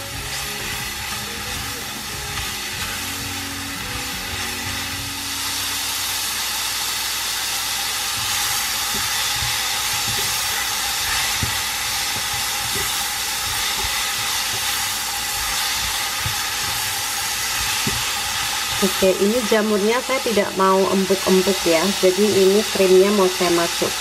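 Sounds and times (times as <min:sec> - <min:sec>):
spatula knocking pan: 0:00.0 - 0:05.2, 0:08.1 - 0:20.1
food sizzling in frying pan: 0:00.0 - 0:24.0.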